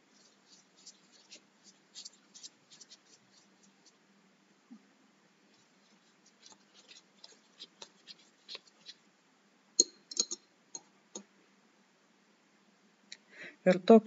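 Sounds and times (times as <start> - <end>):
paintbrush scratching on paper: 0.0 - 4.0, 5.5 - 9.0.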